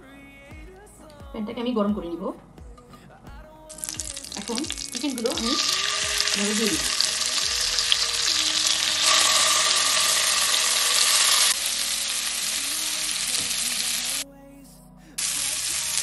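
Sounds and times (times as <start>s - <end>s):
food sizzling in a frying pan: 3.7s - 14.2s, 15.2s - 16.0s.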